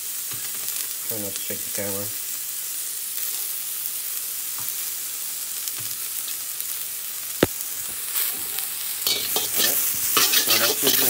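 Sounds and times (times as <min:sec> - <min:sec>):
vegetables sizzling in oil: 0:00.0 - 0:11.0
stirring and scraping in wok: 0:08.5 - 0:11.0.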